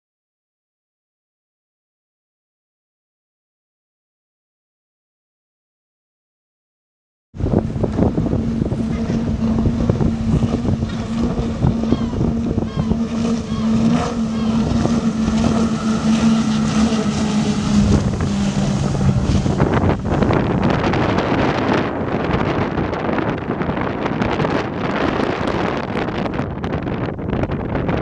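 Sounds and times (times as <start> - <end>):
water rushing: 7.4 - 26.4
powerboat engine drone: 7.4 - 28.0
wind on microphone: 7.4 - 28.0.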